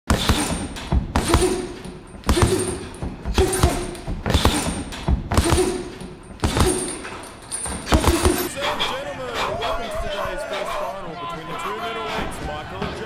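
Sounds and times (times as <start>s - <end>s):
heavy thumps: 0.1s - 8.5s.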